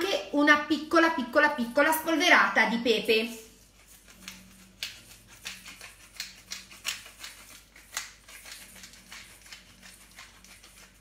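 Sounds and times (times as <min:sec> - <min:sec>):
pepper mill grinding: 0:03.6 - 0:11.0.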